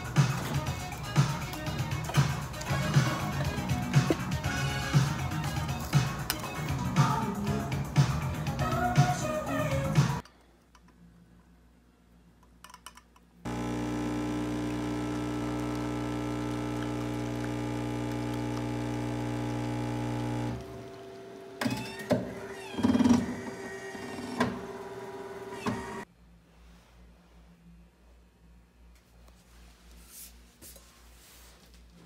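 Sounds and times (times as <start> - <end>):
espresso machine hum: 13.5 - 21.6, 23.2 - 26.0.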